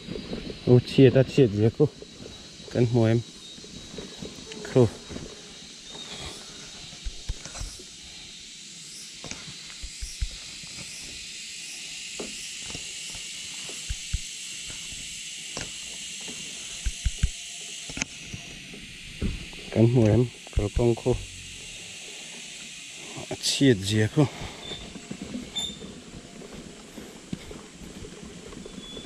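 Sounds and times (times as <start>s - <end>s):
steady high hiss: 0.0s - 29.0s
soft low thumps: 7.0s - 7.8s, 9.8s - 10.4s, 13.9s - 14.3s, 16.8s - 17.4s, 20.5s - 21.8s.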